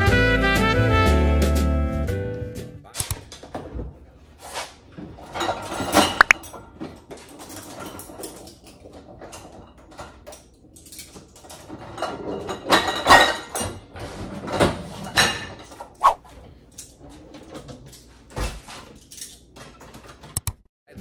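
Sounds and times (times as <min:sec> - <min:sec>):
household things knocking and clattering: 0:05.0 - 0:16.0, 0:16.8 - 0:20.4.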